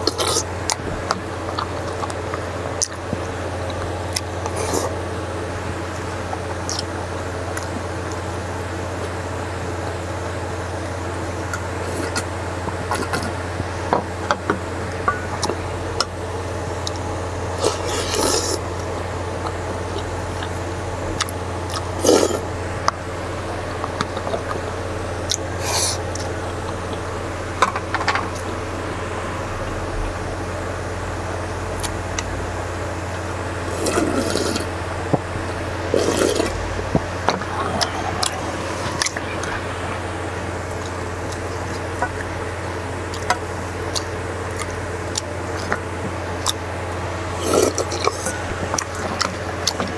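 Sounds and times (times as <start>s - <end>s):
low steady hum: 0.0s - 49.9s
broth slurping: 16.8s - 30.3s, 31.8s - 49.9s.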